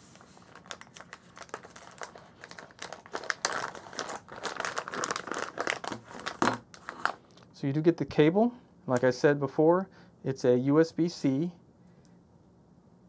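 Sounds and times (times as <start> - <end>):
plastic pouch crinkling: 0.1 - 7.5.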